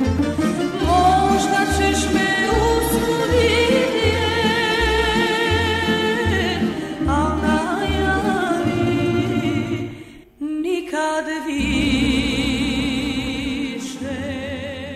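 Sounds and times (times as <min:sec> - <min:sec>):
string orchestra with plucked bass: 0:00.0 - 0:10.0, 0:11.6 - 0:14.9
woman singing with vibrato: 0:00.4 - 0:14.9.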